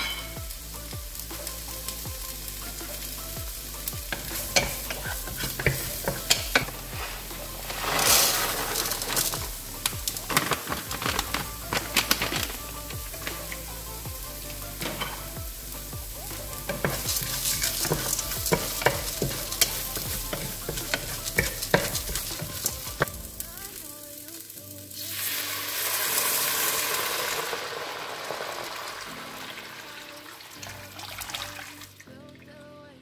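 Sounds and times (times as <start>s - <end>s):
onions frying in oil: 0.0s - 31.8s
water hissing in hot pot: 0.0s - 32.0s
wooden spoon tapping and scraping pan: 4.1s - 6.9s, 16.5s - 23.2s.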